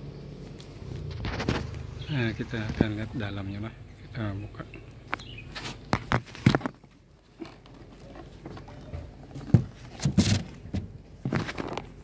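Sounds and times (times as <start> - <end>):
scraping rustle: 0.4 - 3.4, 5.3 - 12.0
hive cover knocks and thumps: 5.5 - 12.0.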